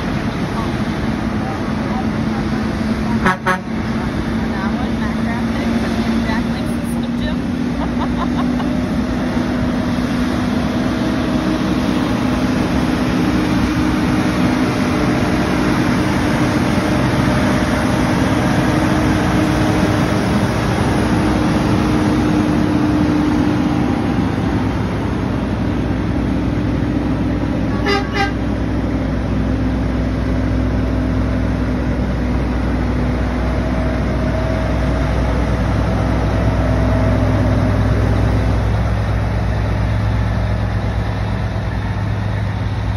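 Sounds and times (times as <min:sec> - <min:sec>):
trucks driving past: 0:00.0 - 0:42.9
truck horn toot: 0:03.1 - 0:03.8, 0:27.7 - 0:28.5.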